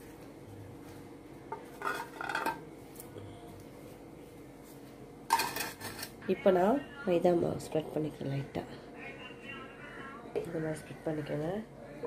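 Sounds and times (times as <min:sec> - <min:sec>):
metal kitchenware clinking: 0:01.8 - 0:02.6, 0:05.3 - 0:06.1.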